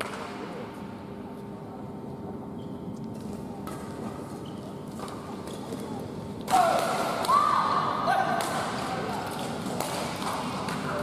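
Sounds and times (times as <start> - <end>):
people shouting: 6.5 - 8.5.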